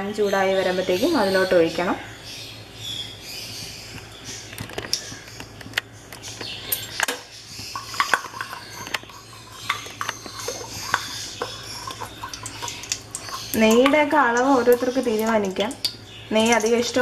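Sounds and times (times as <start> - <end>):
metal spoon clinking on jar: 7.8 - 14.5.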